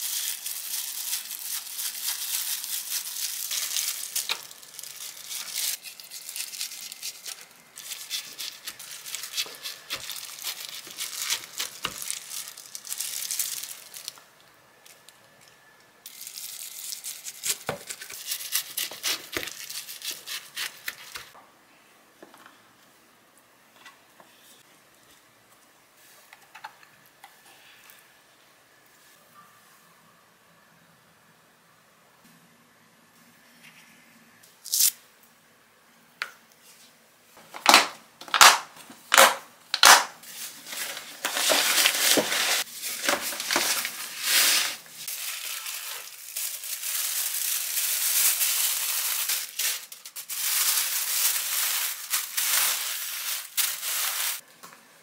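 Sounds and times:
plastic gloves rustling: 0.0s - 15.2s, 16.0s - 21.4s, 36.6s - 54.5s.

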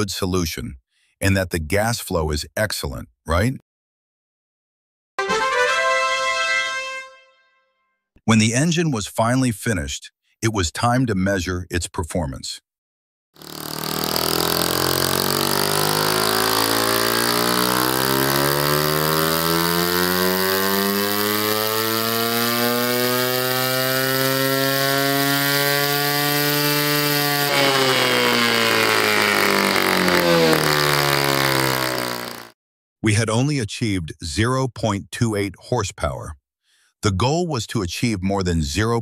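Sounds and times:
model engine running at high revs: 13.4s - 32.6s.

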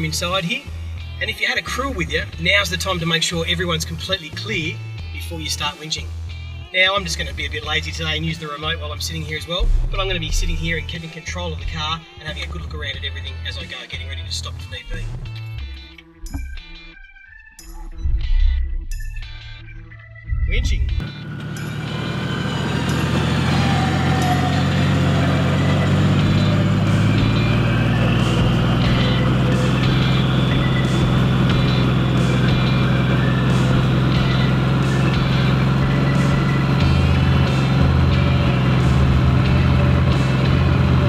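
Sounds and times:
electric winch motor droning: 21.0s - 41.0s.

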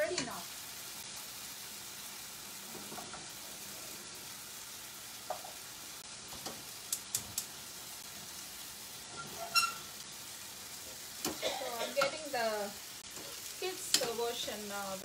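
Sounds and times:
chickpeas sizzling in a frying pan: 0.0s - 15.0s
metal spoon clicking against pan: 13.9s - 14.2s.

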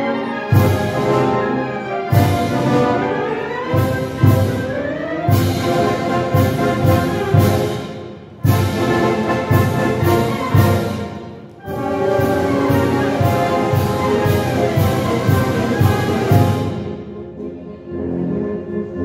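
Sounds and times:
wind band playing a bolero: 0.0s - 19.0s
steady drum beats: 5.3s - 17.0s.

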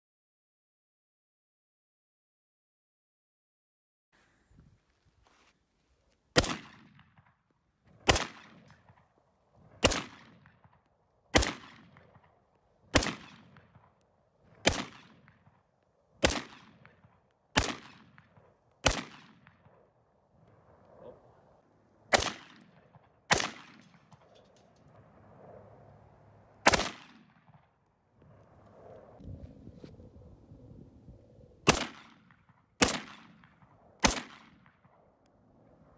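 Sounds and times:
rifle shots echoing: 6.3s - 7.3s, 8.0s - 9.1s, 9.7s - 19.9s, 22.1s - 25.0s, 26.6s - 27.8s, 31.6s - 35.0s.

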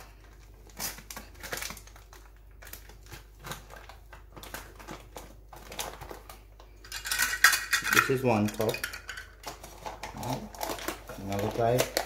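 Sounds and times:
paper bag rustling: 9.6s - 12.0s.

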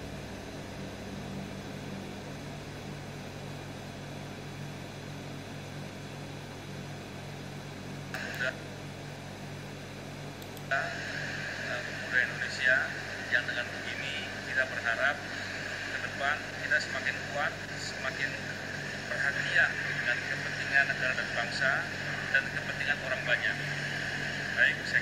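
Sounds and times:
low electrical hum: 0.0s - 25.0s
man's voice: 11.7s - 25.0s.

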